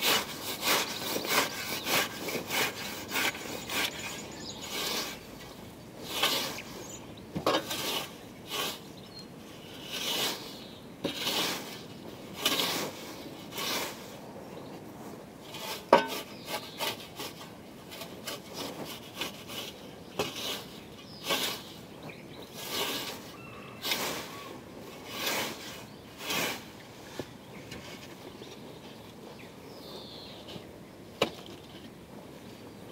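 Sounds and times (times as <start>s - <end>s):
scythe swishing through grass: 0.0s - 5.4s, 6.0s - 8.9s, 9.8s - 14.2s, 15.5s - 21.8s, 22.5s - 27.2s.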